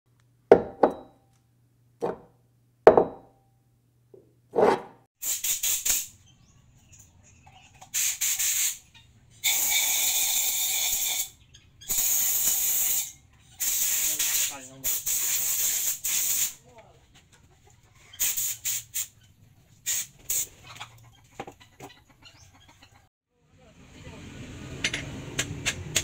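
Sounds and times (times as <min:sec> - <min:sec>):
bursts of hiss: 0:05.2 - 0:06.2, 0:07.9 - 0:11.3, 0:11.9 - 0:16.6, 0:18.2 - 0:19.1, 0:19.8 - 0:20.5.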